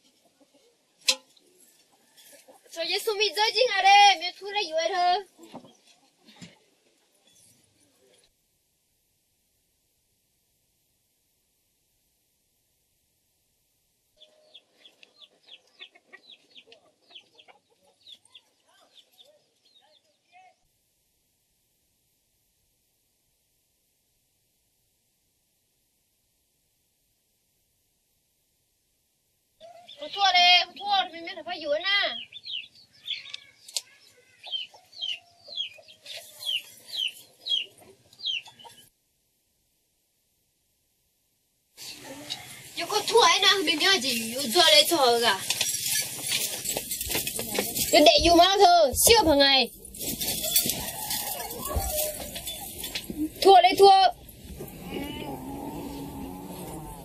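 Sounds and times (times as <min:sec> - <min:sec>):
chickens clucking: 0:14.2 - 0:19.4, 0:32.2 - 0:38.9
chicks cheeping: 0:14.2 - 0:19.8, 0:32.1 - 0:38.9
bird chirping: 0:14.2 - 0:20.2, 0:32.0 - 0:38.9.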